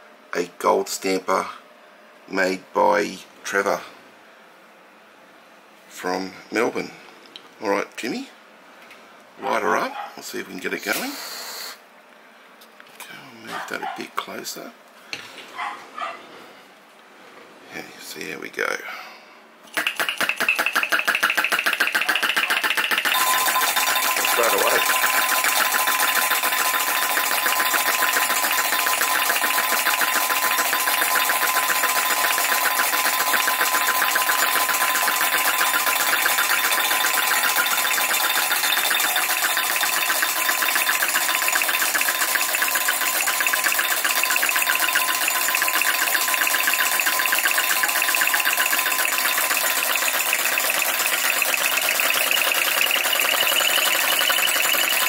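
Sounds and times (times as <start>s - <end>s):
engine and stamps clattering: 19.7s - 55.0s.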